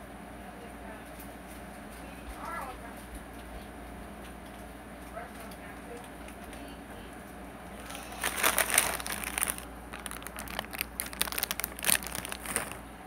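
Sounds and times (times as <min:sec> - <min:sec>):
crinkling and rustling: 0:07.8 - 0:12.9.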